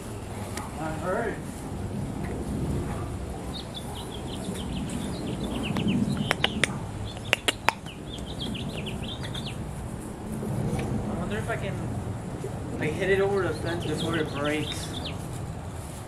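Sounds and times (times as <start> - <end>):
small birds chirping: 3.0 - 10.4, 12.4 - 15.5
sharp clicks: 5.7 - 8.3.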